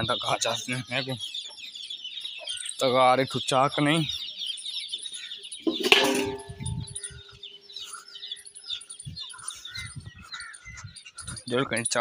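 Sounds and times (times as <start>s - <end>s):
birds chirping: 0.0s - 12.0s
steel pan knock ringing: 5.7s - 7.1s.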